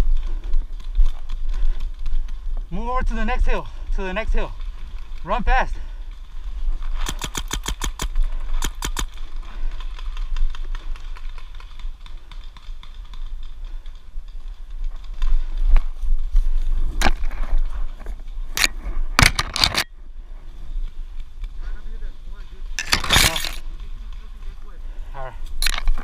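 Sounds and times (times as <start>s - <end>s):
paintball marker firing: 7.0s - 9.2s.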